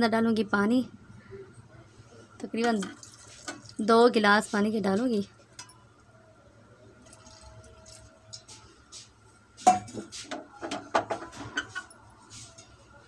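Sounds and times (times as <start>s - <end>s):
water trickling into pot: 2.6s - 4.2s, 6.9s - 8.6s
pot knocks and clatter: 9.6s - 12.0s.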